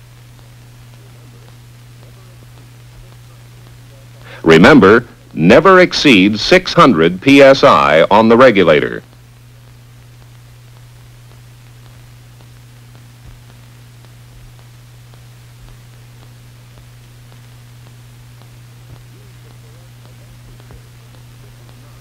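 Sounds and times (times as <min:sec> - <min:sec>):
old film soundtrack hum and hiss: 0:00.0 - 0:22.0
faint clicks: 0:09.0 - 0:22.0.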